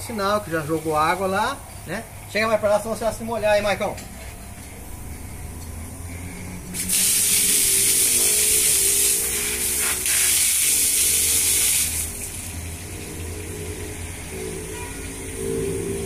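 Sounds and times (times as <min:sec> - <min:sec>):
air and water hissing from valve: 0:06.1 - 0:16.0.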